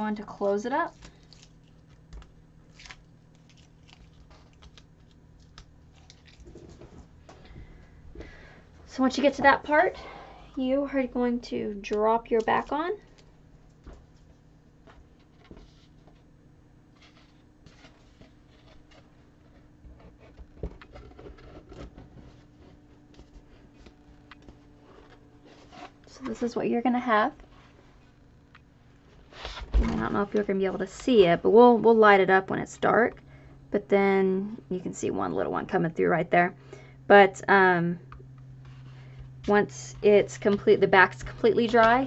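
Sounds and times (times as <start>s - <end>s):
low room hum: 0.0s - 42.0s
small clicks and crackles: 0.8s - 7.1s.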